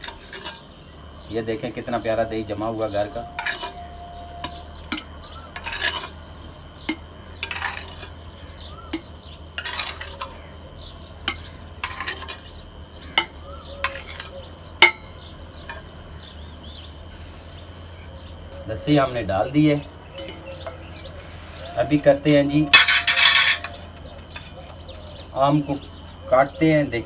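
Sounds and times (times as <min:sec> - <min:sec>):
spoon scraping earthenware bowl: 0:00.0 - 0:00.7, 0:02.7 - 0:06.2, 0:06.8 - 0:08.2, 0:08.9 - 0:10.5, 0:11.3 - 0:12.5, 0:13.2 - 0:15.0, 0:20.2 - 0:25.2.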